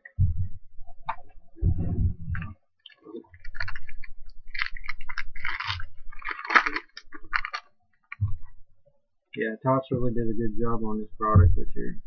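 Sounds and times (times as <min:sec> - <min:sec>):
foil wrapper crinkling: 0:02.8 - 0:08.2.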